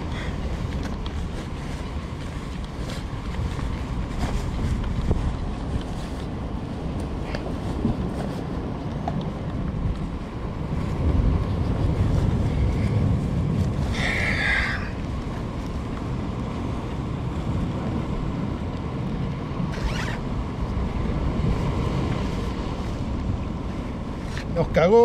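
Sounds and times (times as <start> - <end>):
rain jacket rustling: 0.0 - 11.0, 19.7 - 20.2
gusty wind on microphone: 0.0 - 25.0
sea surf: 0.0 - 25.0.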